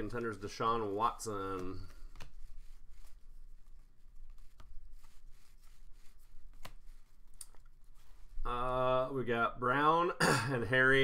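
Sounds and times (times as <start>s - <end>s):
cards sliding and rustling: 0.1s - 8.4s.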